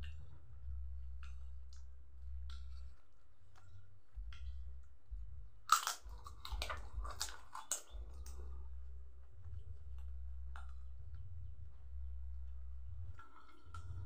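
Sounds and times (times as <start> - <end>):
faint low hum: 0.0 - 14.0
person chewing food: 5.6 - 11.0.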